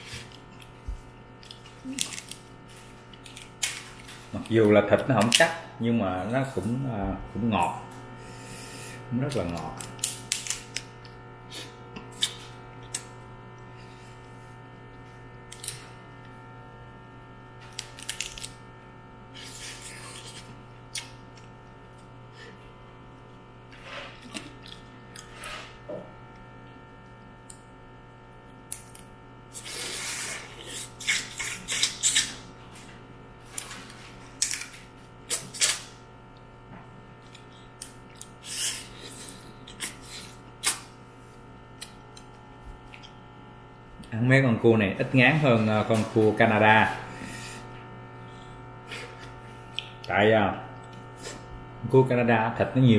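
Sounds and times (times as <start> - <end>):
steady low hum: 0.0 - 52.9
crab shell cracking: 17.7 - 18.6.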